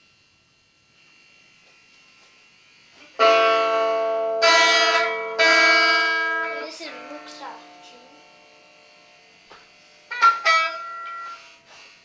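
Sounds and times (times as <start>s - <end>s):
guitar chords ringing: 3.2s - 8.2s, 10.1s - 11.5s.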